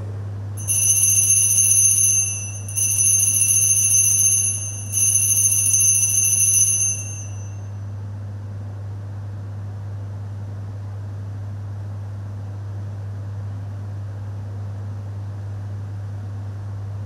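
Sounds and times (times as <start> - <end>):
steady low hum: 0.0 - 7.7
altar bells ringing: 0.6 - 7.7.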